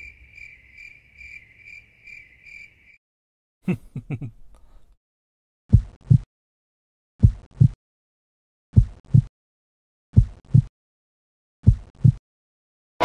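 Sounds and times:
heartbeat thumps: 5.7 - 6.3, 7.2 - 7.8, 8.8 - 9.3, 10.2 - 10.7, 11.6 - 12.2.

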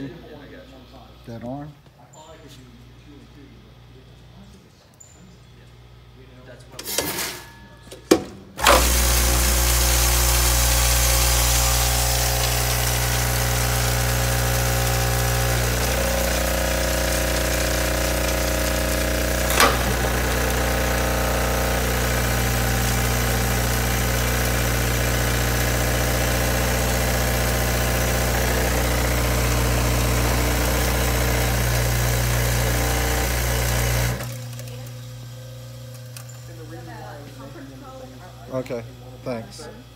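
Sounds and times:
vibratory feeder humming: 8.6 - 39.9.

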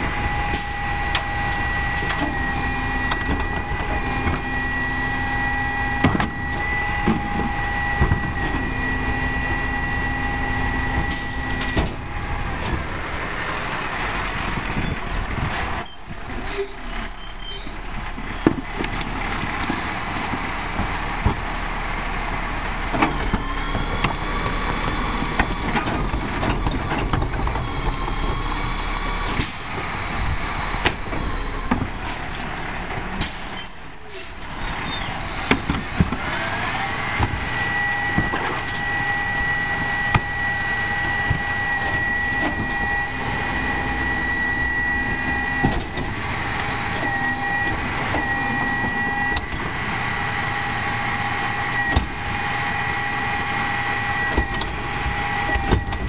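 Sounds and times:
garbage truck engine running: 0.0 - 56.0
rising mechanical whine: 0.1 - 15.6, 36.3 - 56.0
clanks and knocks of carts: 22.8 - 28.6, 29.2 - 37.5.

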